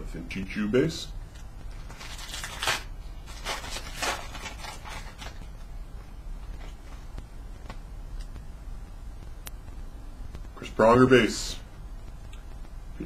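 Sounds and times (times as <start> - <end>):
foil wrapper tearing and crinkling: 1.3 - 5.6.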